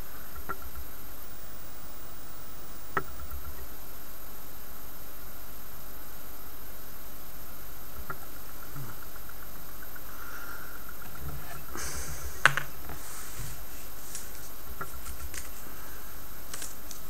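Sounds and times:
background hiss: 0.0s - 17.0s
handling rustles: 11.4s - 17.0s.

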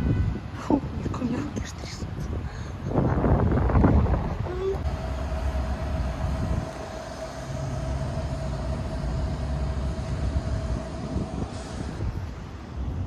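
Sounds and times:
vehicle engine rumble: 0.0s - 13.0s
steady high whine: 4.8s - 13.0s.

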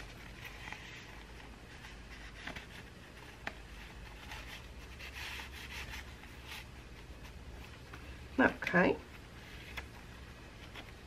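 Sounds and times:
paper rustling and sliding: 0.0s - 7.8s.

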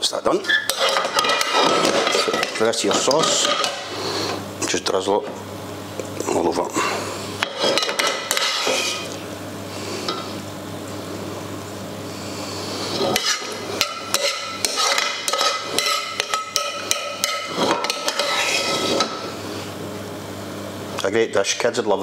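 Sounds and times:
metal spoon scraping frying pan: 0.5s - 4.4s, 7.5s - 9.1s, 13.1s - 19.2s.

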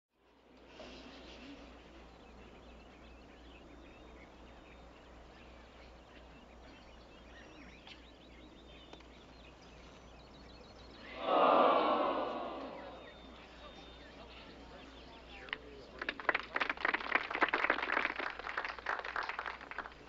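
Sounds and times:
distant bird chirps: 0.6s - 15.5s.

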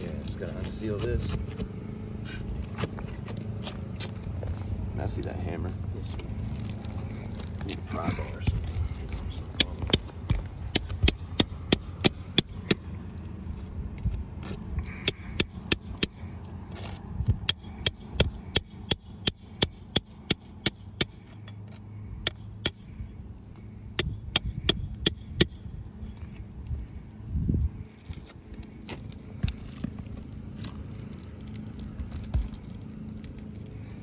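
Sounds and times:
pry bar tapping on shingles: 8.4s - 13.0s, 14.4s - 25.7s.

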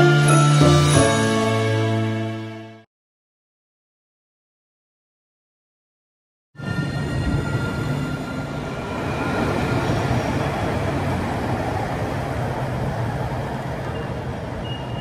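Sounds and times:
tram rolling on rails: 6.6s - 15.0s.

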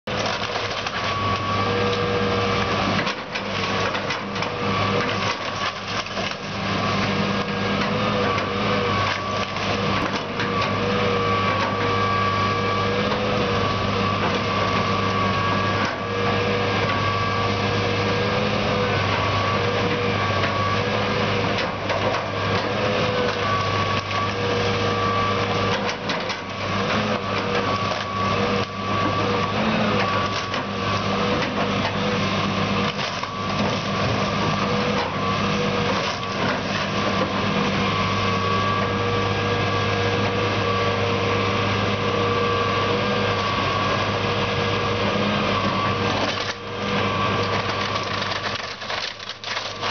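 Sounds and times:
excavator diesel engine running: 0.1s - 49.9s
wood and roofing cracking: 47.6s - 49.9s.

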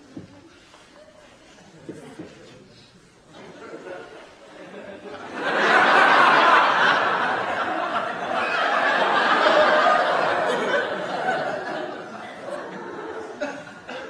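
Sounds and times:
studio audience laughing: 3.4s - 14.0s.

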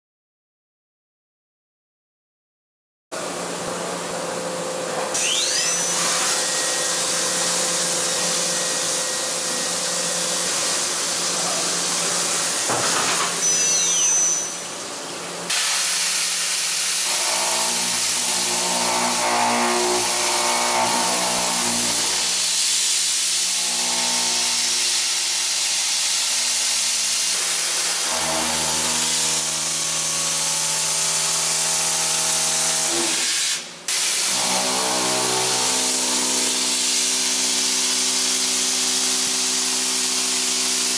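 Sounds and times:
milling cutter humming: 4.8s - 15.3s, 27.3s - 33.2s
drill cutting steel with bright hiss: 5.1s - 14.8s, 15.5s - 40.9s.

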